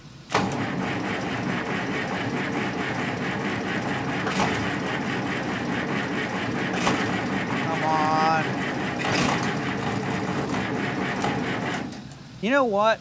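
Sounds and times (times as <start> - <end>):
starter cranking diesel engine: 0.3 - 12.4.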